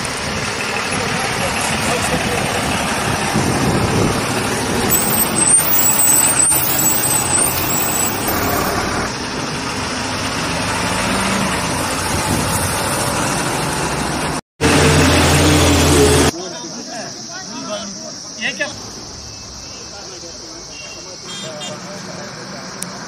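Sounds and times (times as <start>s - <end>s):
heavy truck engines running: 0.0s - 16.4s.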